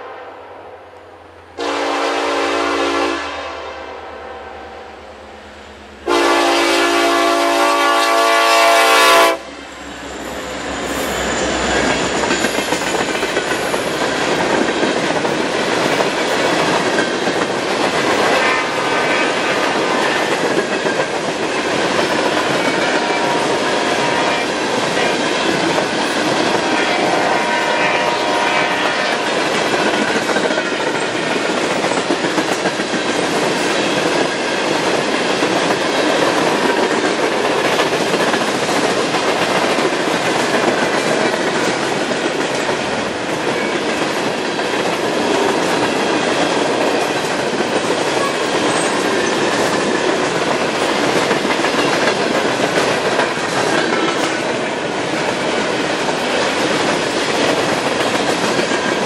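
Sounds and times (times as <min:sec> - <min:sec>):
train horn blast: 0:01.6 - 0:05.1, 0:06.0 - 0:09.5, 0:18.3 - 0:20.3, 0:22.8 - 0:25.2, 0:26.6 - 0:29.4
train wheels rumbling on rails: 0:05.2 - 0:59.0.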